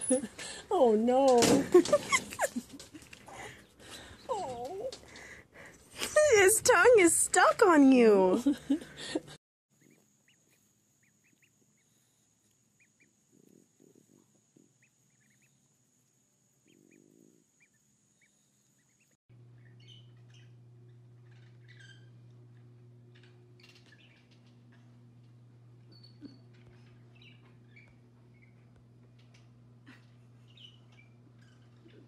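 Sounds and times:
steady low hum: 0:01.6 - 0:32.0
ducklings peeping: 0:09.8 - 0:12.1, 0:14.8 - 0:15.6, 0:17.6 - 0:32.0.

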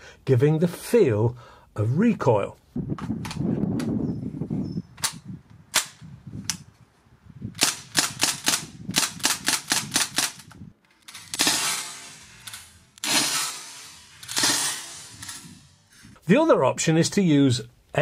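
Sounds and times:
bb rifle shots: 0:07.6 - 0:15.6.

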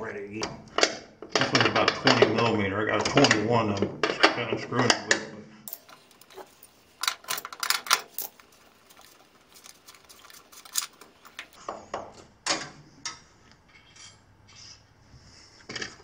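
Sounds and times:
wrench clicking on metal nuts: 0:05.7 - 0:11.6.

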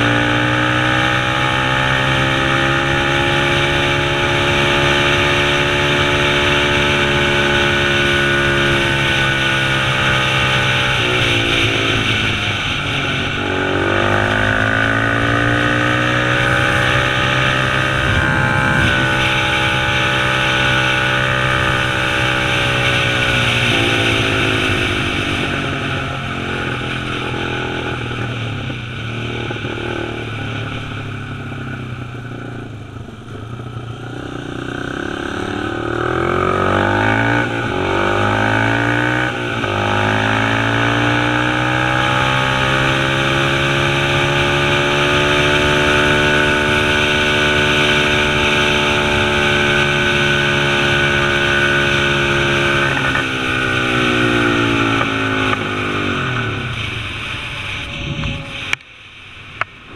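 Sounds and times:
dirt bike engine accelerating: 0:00.0 - 0:59.9
wind rushing: 0:11.7 - 0:29.1.

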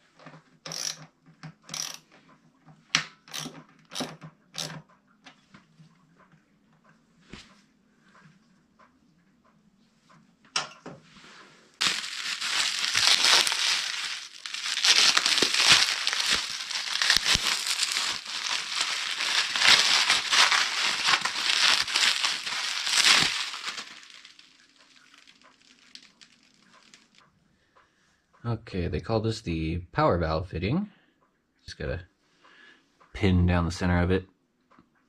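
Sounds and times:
plastic wrapping crinkling: 0:11.8 - 0:27.2.

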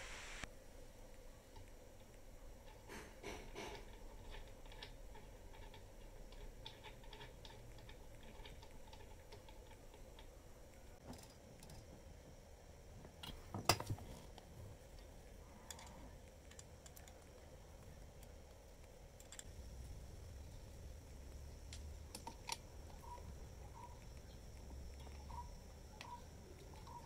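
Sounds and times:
light clicking and knocking: 0:01.6 - 0:12.0.

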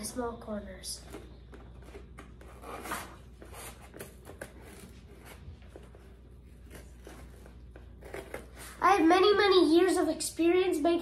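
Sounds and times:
scissors cutting cardboard: 0:01.7 - 0:08.7.

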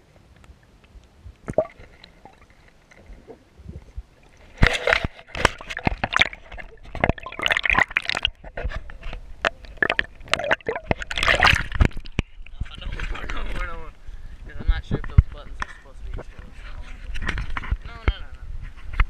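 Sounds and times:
water sloshing and splashing: 0:01.3 - 0:13.7.

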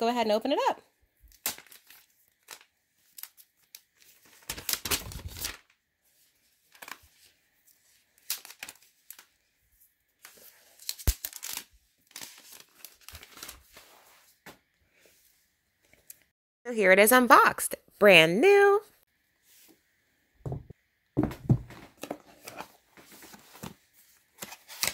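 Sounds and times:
plastic wrap crinkling and tearing: 0:01.3 - 0:05.7, 0:08.1 - 0:09.4, 0:10.2 - 0:13.9, 0:24.3 - 0:24.9
laptop being handled: 0:20.5 - 0:24.9.

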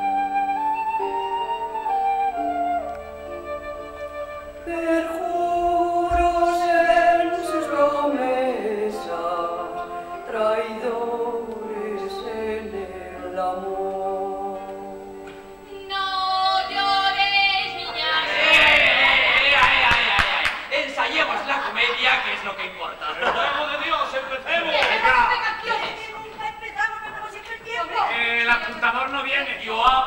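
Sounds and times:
woman singing slow song: 0:04.6 - 0:18.4.

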